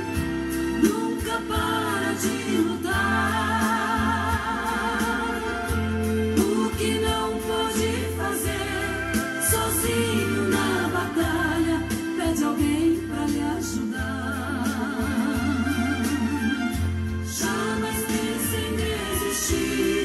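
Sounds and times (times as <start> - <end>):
bass and drum beat: 0.0 - 20.0
woman singing a hymn: 0.8 - 5.8, 6.4 - 16.3.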